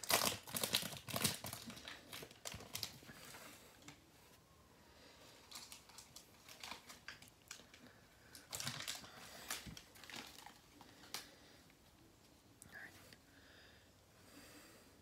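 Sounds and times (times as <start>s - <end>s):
cards rustling and clicking: 0.0s - 4.0s
wrapper crinkling: 0.0s - 4.0s, 5.4s - 11.3s.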